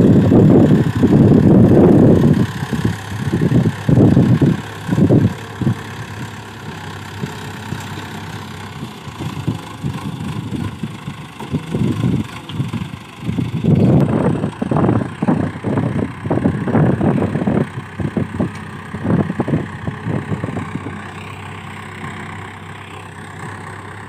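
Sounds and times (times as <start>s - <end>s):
wind buffeting microphone: 0.0s - 6.4s, 8.7s - 21.2s
tractor diesel engine running: 0.0s - 24.0s.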